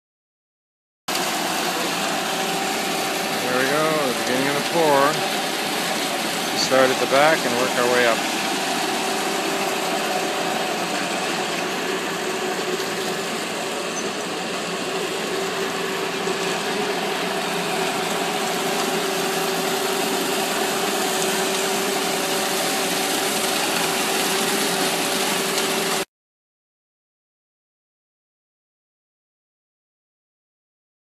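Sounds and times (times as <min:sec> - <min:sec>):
diesel truck engine running: 0:01.6 - 0:20.0.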